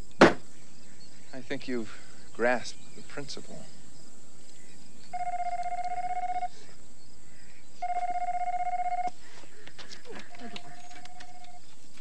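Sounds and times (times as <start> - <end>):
telephone electronic warbling ring: 5.2 - 6.6, 7.8 - 9.2.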